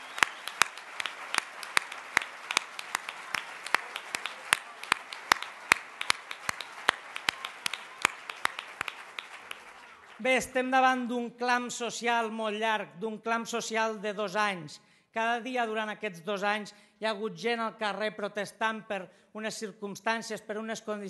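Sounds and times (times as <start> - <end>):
audience applauding: 0.0 - 10.6
sharp rhythmic claps: 0.0 - 10.6.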